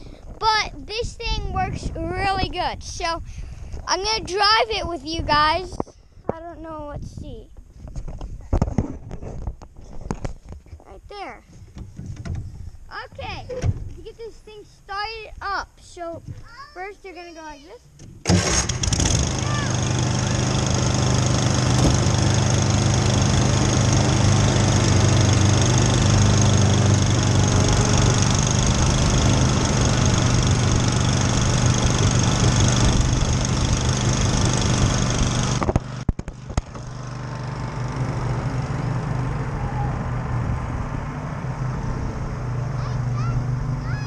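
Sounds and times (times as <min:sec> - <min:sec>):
lawn mower engine running: 0:18.2 - 0:44.0.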